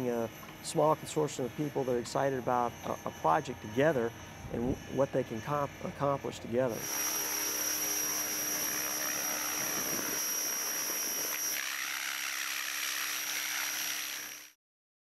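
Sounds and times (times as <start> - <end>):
model helicopter high whine: 0.0 - 14.6
spinning rotor hum: 6.7 - 14.5.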